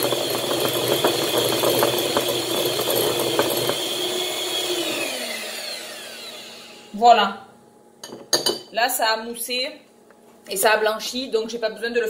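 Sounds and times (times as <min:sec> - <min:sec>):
beaters rattling in a bowl: 0:00.0 - 0:03.8
electric hand mixer whirring: 0:00.0 - 0:07.0.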